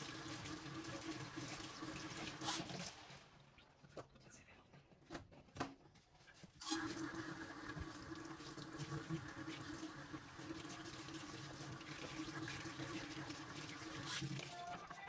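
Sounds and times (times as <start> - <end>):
water running into steel sink: 0.0 - 3.3, 6.6 - 14.7.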